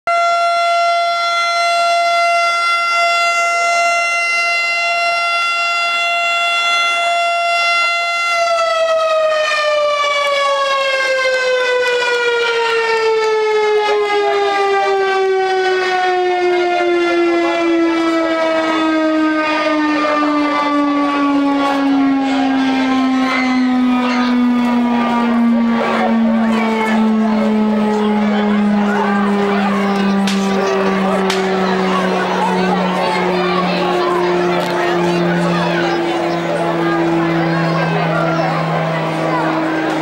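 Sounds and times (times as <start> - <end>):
civil defense siren winding down: 0.1 - 40.0.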